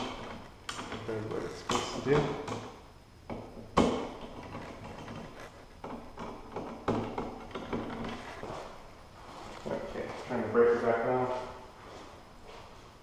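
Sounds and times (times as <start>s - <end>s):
sharp clicks and knocks: 0.0s - 8.5s
faint rustling: 7.4s - 13.0s.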